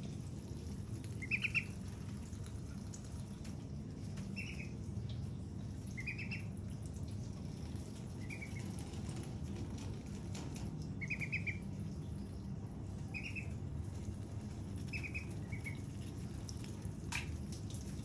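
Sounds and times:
steady low hum: 0.0s - 18.0s
ducklings peeping: 1.1s - 1.9s, 4.2s - 4.9s, 5.8s - 6.6s, 8.1s - 9.0s, 10.9s - 12.1s, 12.9s - 14.0s, 14.6s - 16.2s.

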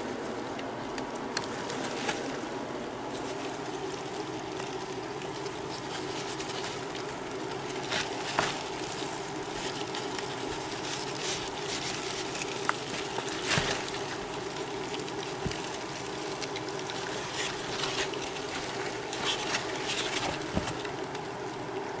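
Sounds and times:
steady low hum: 0.0s - 22.0s
cardboard rustling and knocking: 17.5s - 21.0s.

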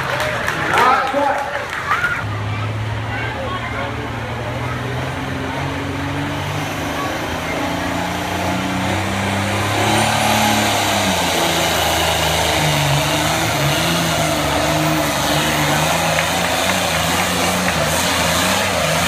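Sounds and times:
diesel tractor engine revving: 2.2s - 19.0s.

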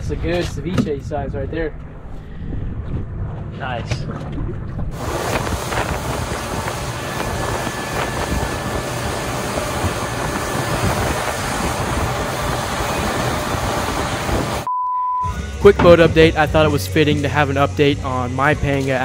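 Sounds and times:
wind buffeting microphone: 2.0s - 14.7s
outboard motor running: 4.9s - 14.7s
water rushing along hull: 4.9s - 14.7s.

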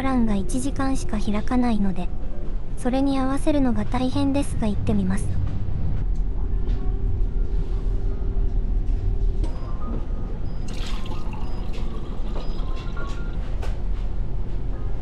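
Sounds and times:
steady low hum: 0.0s - 15.0s
dispenser pouring into a cup: 10.7s - 13.4s.

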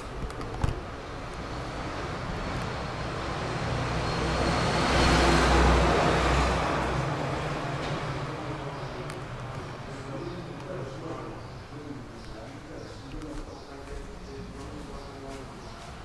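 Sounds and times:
vehicle passing by: 1.4s - 11.9s.

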